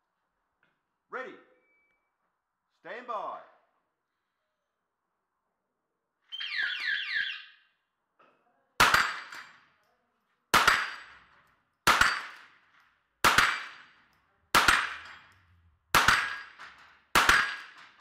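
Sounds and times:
rifle shots: 8.8 - 9.6, 10.5 - 18.0
steel plate target clang: 8.8 - 9.6, 10.6 - 11.3, 11.9 - 12.5, 14.6 - 15.4, 16.0 - 18.0.

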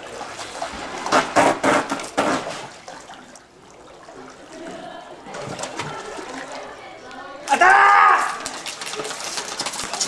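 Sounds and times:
pool water splashing: 0.0 - 10.0.

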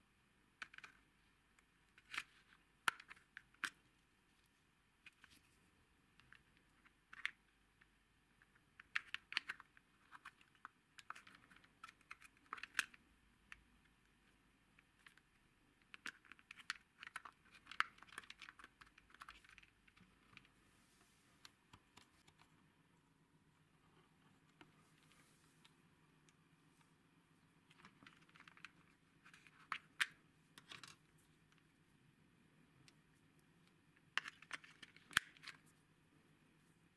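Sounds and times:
plastic clicks and rattles: 8.4 - 13.6, 14.8 - 20.5, 27.6 - 31.6, 34.0 - 35.7.

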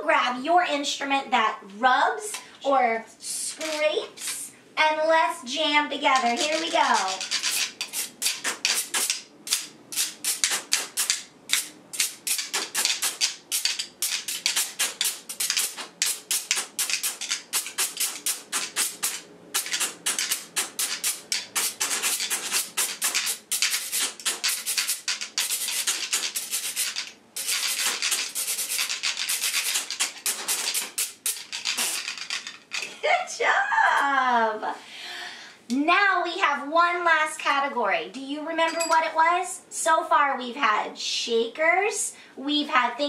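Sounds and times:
metal straw scraping grater: 6.1 - 32.2
chopstick rasping on notebook wire: 6.2 - 32.1.

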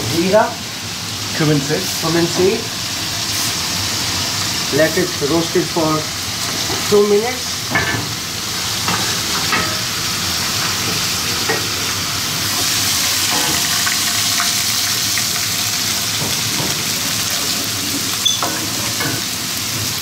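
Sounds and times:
seeds sizzling in hot oil: 0.1 - 20.0
spoon clinking on pots: 18.2 - 19.2.

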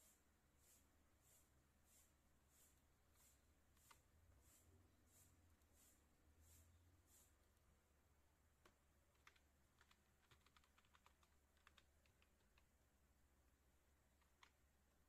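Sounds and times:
faint computer keyboard typing: 3.7 - 4.1, 8.5 - 12.8, 14.0 - 14.8.

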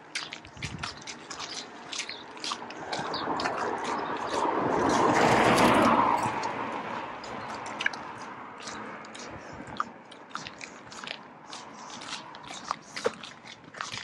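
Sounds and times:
footsteps crunching in snow: 0.0 - 8.8
vehicle passing: 0.0 - 14.0.

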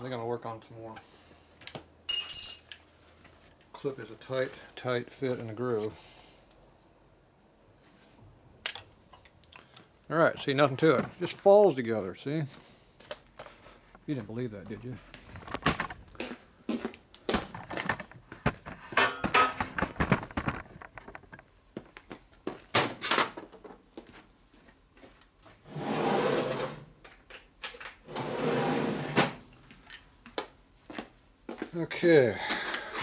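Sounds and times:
metal tools clicking and rattling: 2.1 - 2.8.

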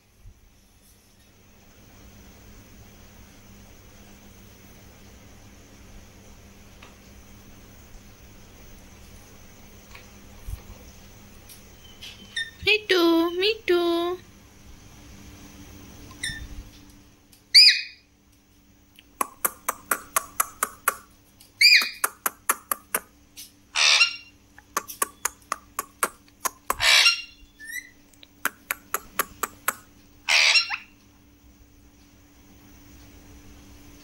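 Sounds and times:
parakeets squawking: 17.6 - 18.0, 21.6 - 22.0, 23.7 - 24.3, 26.7 - 28.0, 30.3 - 31.0
rapid sharp bird clicks: 19.0 - 23.5, 24.6 - 27.1, 28.1 - 29.9.

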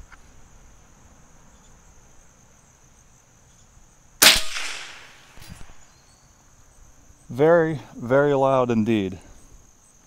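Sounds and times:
crickets chirring: 0.0 - 10.0
air rifle shot: 4.2 - 5.8.

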